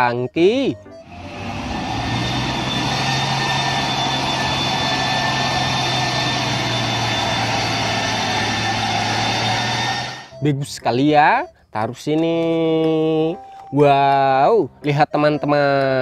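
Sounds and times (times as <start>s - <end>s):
diesel truck engine running: 0.9s - 10.4s.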